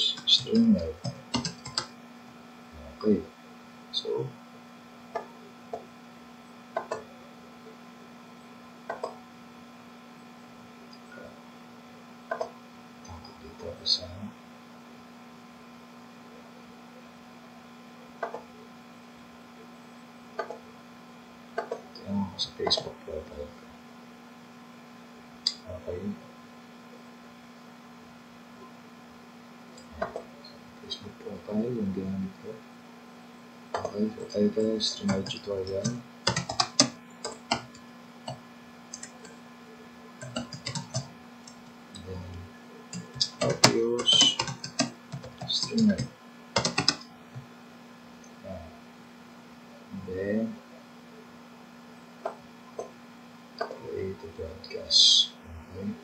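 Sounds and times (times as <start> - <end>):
computer keyboard typing: 0.0 - 2.0, 8.9 - 9.2, 12.3 - 12.5, 33.8 - 39.4, 40.2 - 42.2, 42.9 - 47.4
electrical hum: 0.0 - 56.0
mouse clicks: 20.4 - 20.6.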